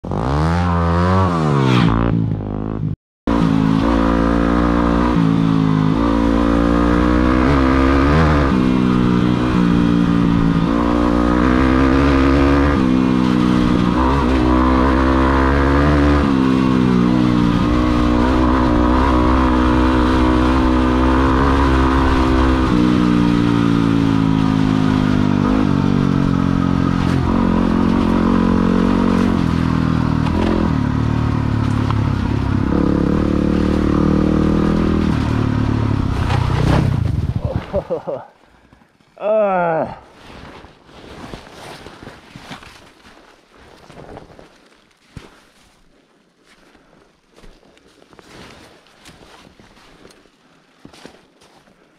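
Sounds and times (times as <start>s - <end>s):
vehicle engine revving: 0.0s - 37.1s.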